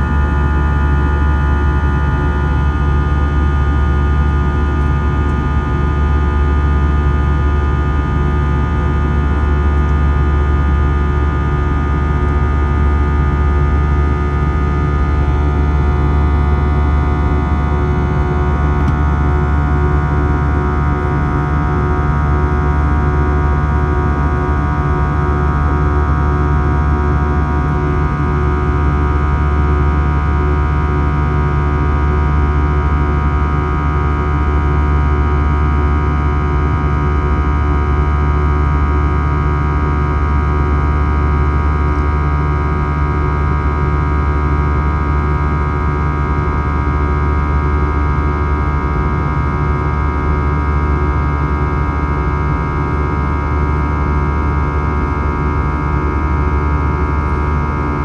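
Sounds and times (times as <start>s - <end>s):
airliner cabin engine drone: 0.0s - 39.7s.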